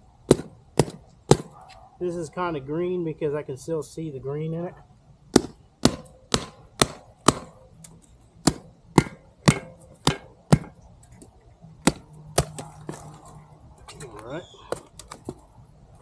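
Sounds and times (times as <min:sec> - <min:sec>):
hatchet chopping wood: 0:00.3 - 0:01.6, 0:05.3 - 0:07.7, 0:08.4 - 0:10.8, 0:11.8 - 0:13.2.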